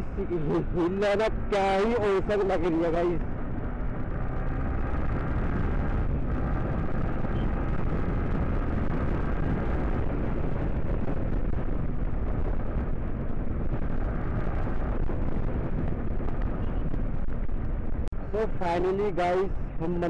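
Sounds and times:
motorcycle engine running: 0.0 - 20.0
wind buffeting the microphone: 3.2 - 18.4.

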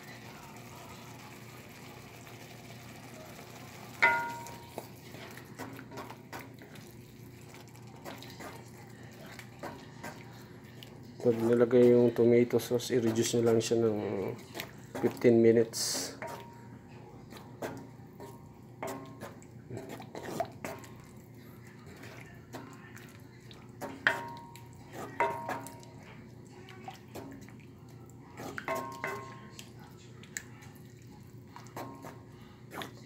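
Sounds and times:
wooden spoon scraping a pan: 4.0 - 10.5, 11.1 - 16.6, 17.3 - 22.8, 23.5 - 26.2, 28.3 - 29.3.

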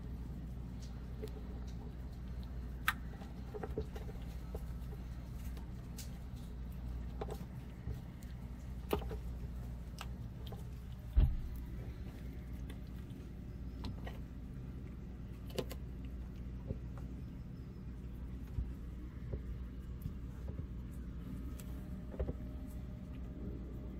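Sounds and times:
steady low hum: 0.0 - 23.9.

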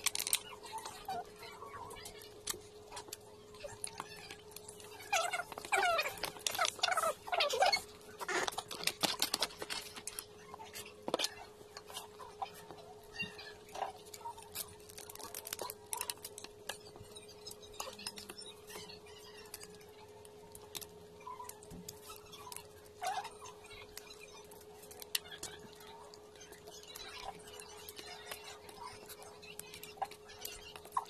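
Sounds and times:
chewing and smacking: 0.0 - 31.0.

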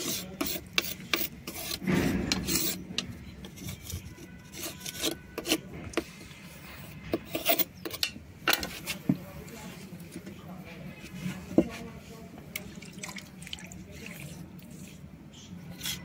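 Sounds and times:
serrated blade scraping stone: 0.0 - 2.9, 3.5 - 5.7, 7.1 - 8.0.

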